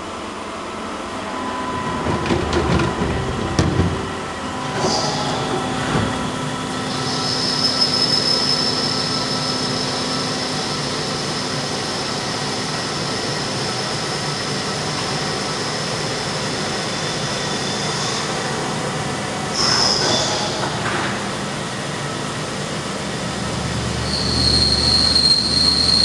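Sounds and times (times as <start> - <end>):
lathe machine whine: 0.0 - 26.0.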